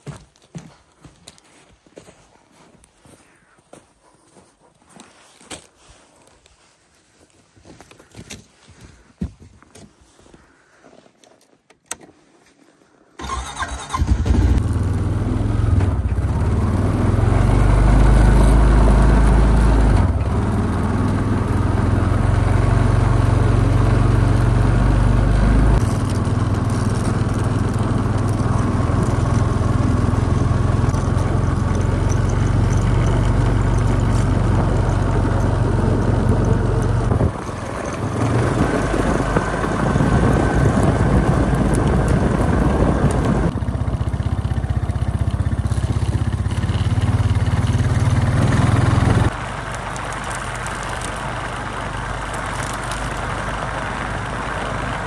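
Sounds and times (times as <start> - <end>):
atv engine running: 13.2 - 55.0.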